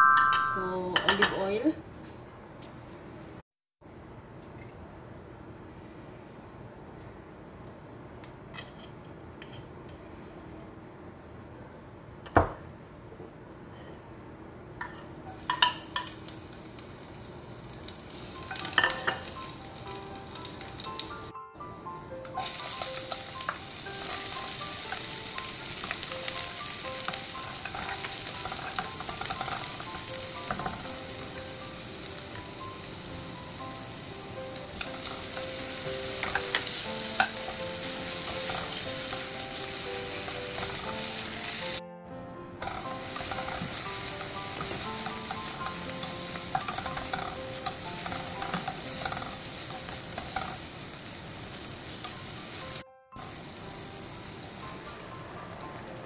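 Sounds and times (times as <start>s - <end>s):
food sizzling in oil: 15.3s - 41.8s, 42.6s - 56.0s
wooden spoon stirring and scraping: 27.6s - 30.7s, 42.6s - 50.6s.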